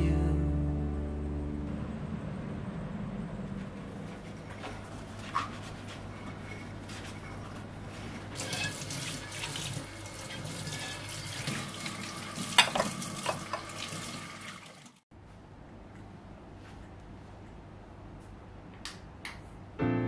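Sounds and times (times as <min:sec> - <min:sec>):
dishes clinking: 0:08.4 - 0:08.9, 0:12.6 - 0:13.6.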